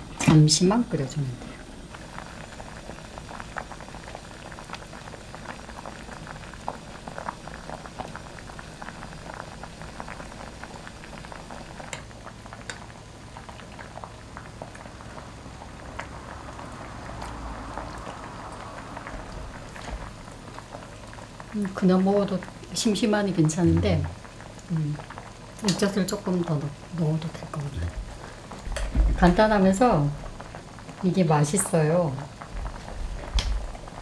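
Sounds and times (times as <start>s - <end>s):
stew boiling in a pot: 0.0s - 34.0s.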